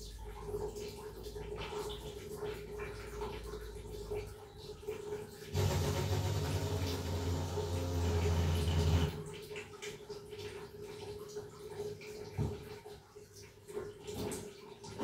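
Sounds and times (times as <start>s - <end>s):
water gushing with low rumble: 0.0s - 15.0s.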